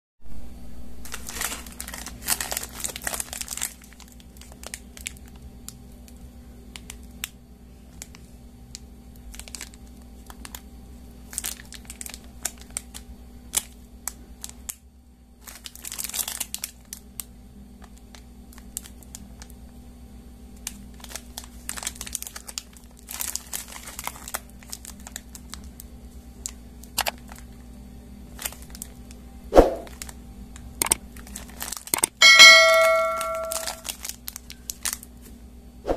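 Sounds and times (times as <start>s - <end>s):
faint steady hum: 0.3s - 35.9s
plastic wrappers crinkling: 1.0s - 10.6s, 11.2s - 14.8s, 15.4s - 19.5s, 20.6s - 27.6s, 28.3s - 29.2s, 29.9s - 35.4s
sharp click: 31.9s - 33.8s.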